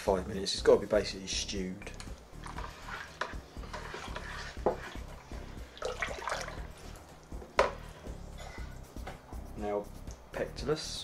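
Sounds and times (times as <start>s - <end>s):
liquid sloshing and swirling: 2.1s - 7.4s.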